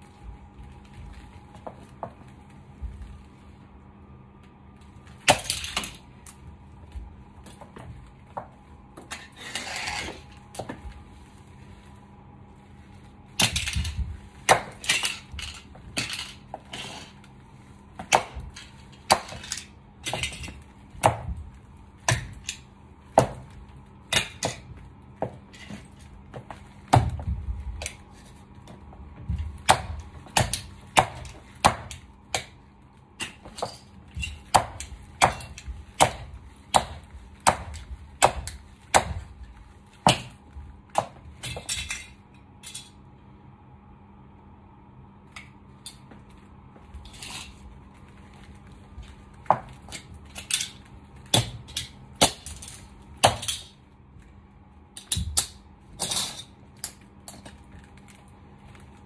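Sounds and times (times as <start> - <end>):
heels stamping on tiled floor: 0.0 - 3.4, 4.8 - 9.2, 13.4 - 41.7, 47.8 - 50.6
plastic toy cars cracking: 5.2 - 6.0.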